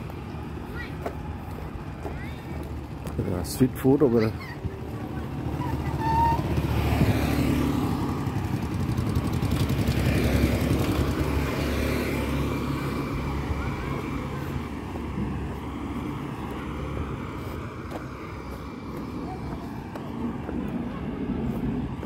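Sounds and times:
motor scooters passing: 0.0 - 22.0.

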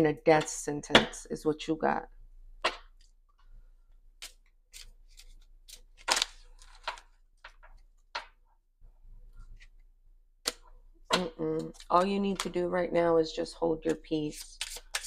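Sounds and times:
cards clicking and snapping: 10.4 - 10.7.

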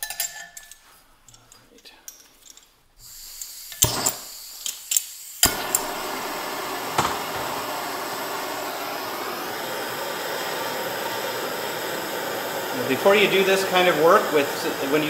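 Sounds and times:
gas hissing from valve: 3.0 - 15.0
torch flame rushing hiss: 3.0 - 15.0
torch igniter clicks: 3.4 - 15.0.

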